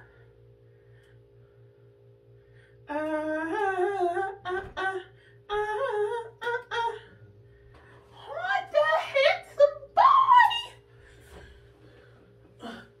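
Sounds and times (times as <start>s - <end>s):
woman humming: 2.9s - 7.3s, 12.6s - 13.0s.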